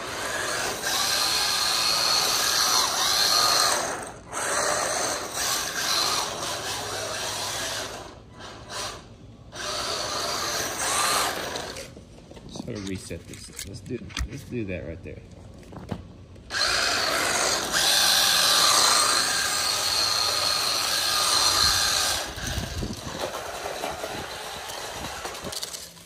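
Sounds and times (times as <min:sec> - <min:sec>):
electric motor and gears whining: 0:00.0 - 0:15.0, 0:15.6 - 0:26.0.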